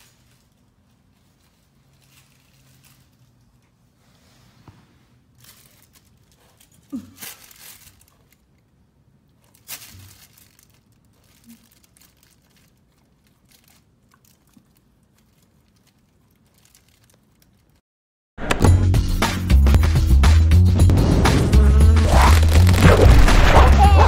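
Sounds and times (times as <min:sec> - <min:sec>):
loud music: 0:18.5 - 0:24.0.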